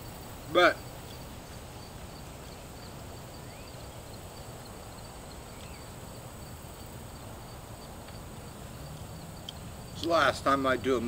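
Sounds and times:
faint bird chirps: 0.0 - 6.1
background hiss: 0.0 - 11.0
insect chirping: 0.0 - 11.0.

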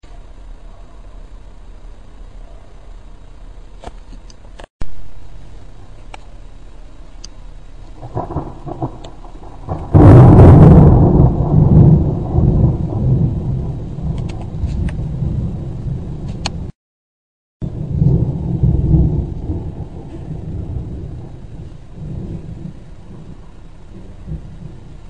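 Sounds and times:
rolling thunder rumbling: 7.9 - 16.7, 17.6 - 25.0
thunder crack: 8.0 - 16.7, 17.6 - 25.0.

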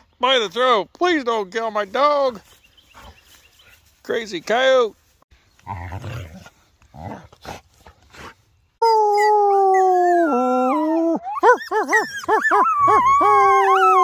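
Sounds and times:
coyote howling and yipping: 8.8 - 14.0.

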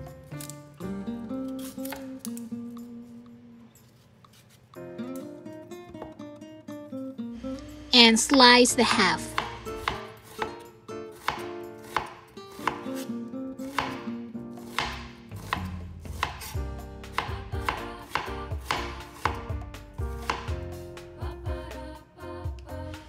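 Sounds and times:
knife slicing onion on cutting board: 1.4 - 2.5, 9.3 - 19.6, 20.2 - 20.6.

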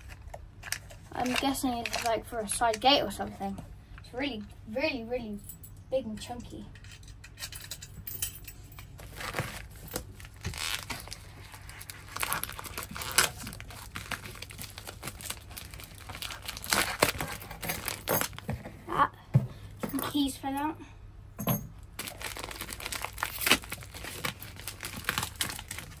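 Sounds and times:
plastic packaging crinkling: 0.0 - 2.9, 9.0 - 18.5, 22.0 - 26.0.

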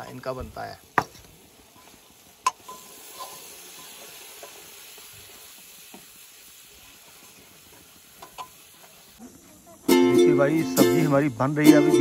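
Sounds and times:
curry sizzling in oil: 0.0 - 11.8.

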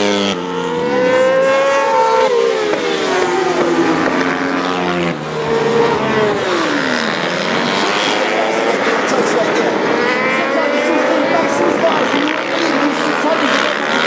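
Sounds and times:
racing motorcycles at high revs: 0.0 - 14.0.

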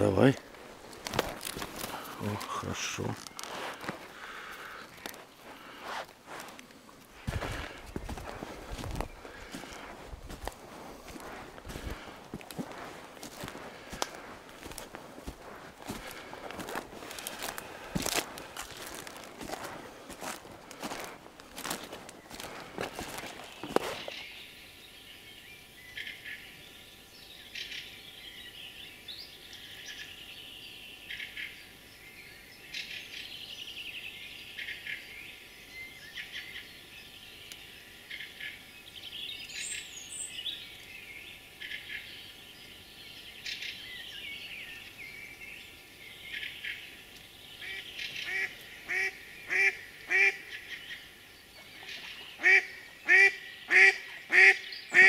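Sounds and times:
small birds singing: 0.0 - 55.0.

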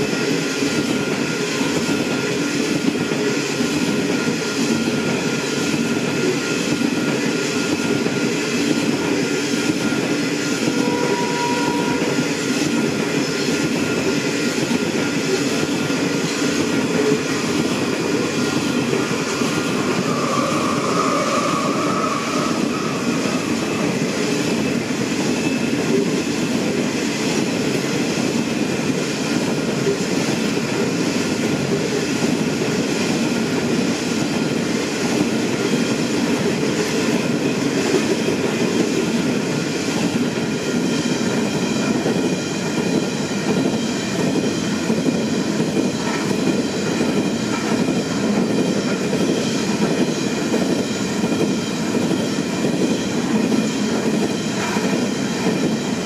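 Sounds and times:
train wheels clattering: 0.0 - 56.0
wheel squeal: 18.4 - 26.3.

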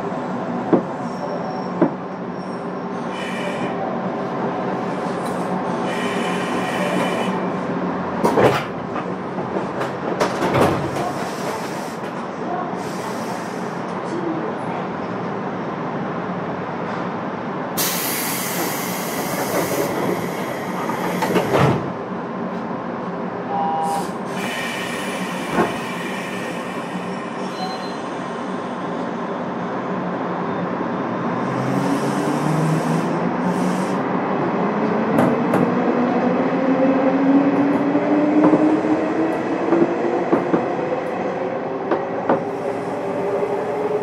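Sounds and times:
train cabin rumble and hum: 0.0 - 44.0
high wheel squeal: 27.4 - 28.2.

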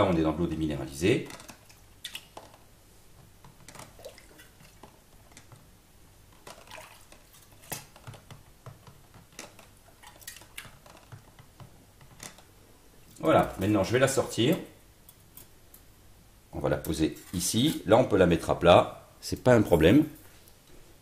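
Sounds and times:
water dripping and splashing: 3.7 - 4.9, 6.4 - 8.1, 9.4 - 11.0.

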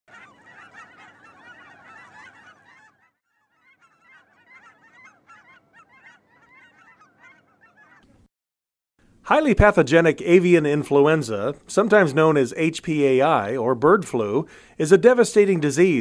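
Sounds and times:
geese honking: 0.1 - 8.2.

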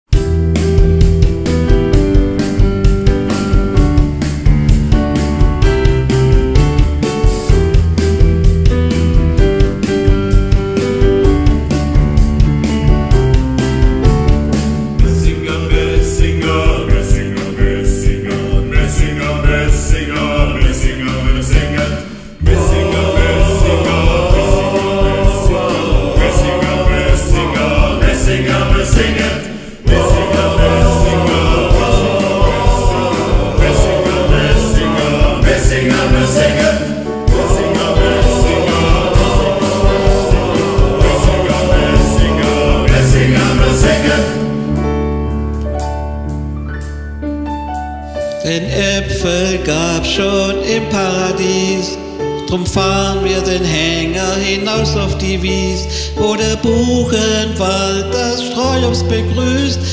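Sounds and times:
drum kit beat: 0.1 - 46.9
keyboard: 0.1 - 59.9
men's choir singing: 15.0 - 44.7.

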